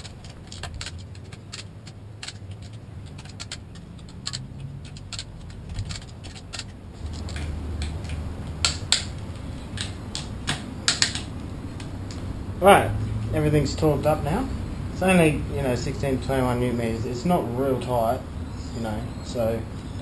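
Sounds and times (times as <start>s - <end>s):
ratchet clicking: 0.0s - 7.5s.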